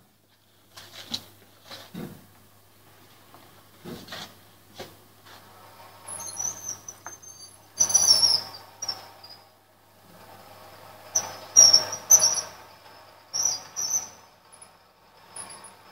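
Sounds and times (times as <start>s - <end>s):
winch motor humming: 5.6s - 15.9s
high-pitched squeaks and chirps: 6.1s - 9.4s, 11.2s - 12.6s, 13.3s - 14.2s.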